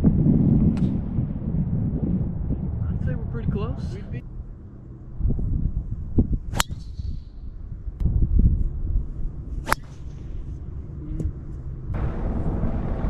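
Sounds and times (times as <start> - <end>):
golf club striking ball: 6.4 - 8.1, 9.6 - 10.4.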